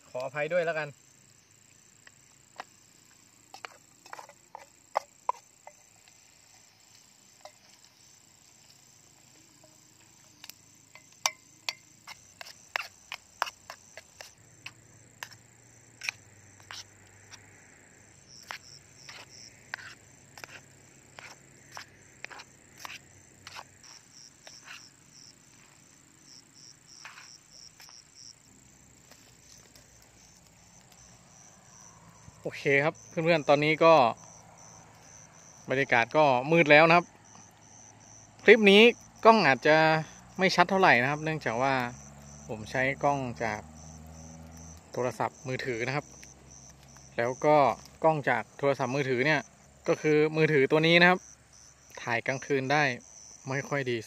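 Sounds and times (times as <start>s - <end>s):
insects chirring: 0.0s - 54.0s
sharp clicks and crackles: 29.0s - 31.2s.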